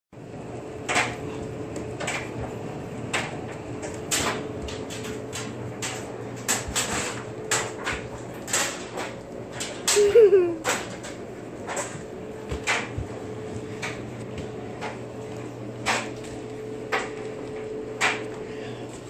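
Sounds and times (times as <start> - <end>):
electrical hum: 0.2 - 19.0
footsteps on tile floor: 11.8 - 18.4.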